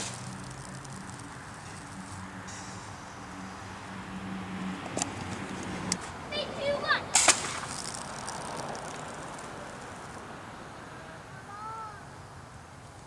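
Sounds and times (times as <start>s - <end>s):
burst of rushing air: 7.0s - 10.2s.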